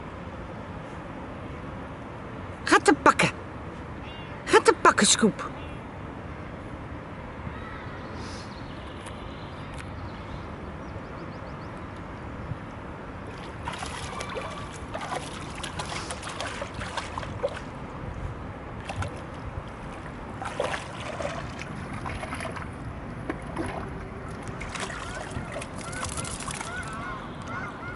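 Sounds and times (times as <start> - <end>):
wind rumble on microphone: 10.0 - 27.9
water splashing around dog's legs: 13.3 - 17.8, 18.8 - 22.8, 23.4 - 27.0.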